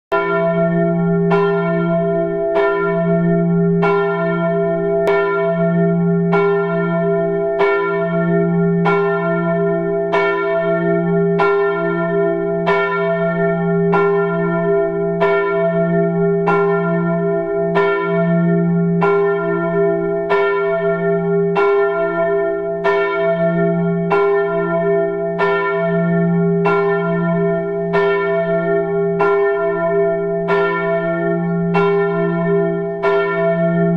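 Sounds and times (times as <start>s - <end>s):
church bell tolling: 0.1s - 33.9s.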